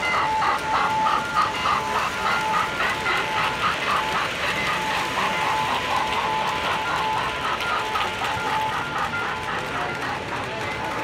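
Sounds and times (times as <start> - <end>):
model steam locomotive chuffing: 0.0 - 11.0.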